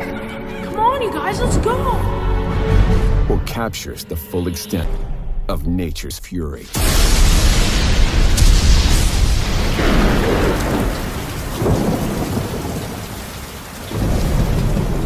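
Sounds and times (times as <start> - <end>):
heavy rain: 6.7 - 15.0
deep rolling thunder: 6.8 - 15.0.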